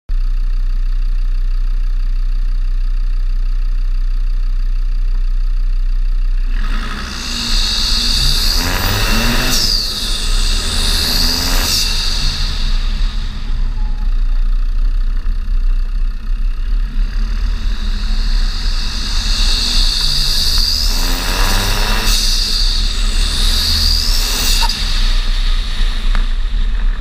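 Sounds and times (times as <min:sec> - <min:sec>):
diesel engine idling and revving: 0:00.1 - 0:27.0
turbo whistle: 0:06.5 - 0:15.1, 0:16.9 - 0:27.0.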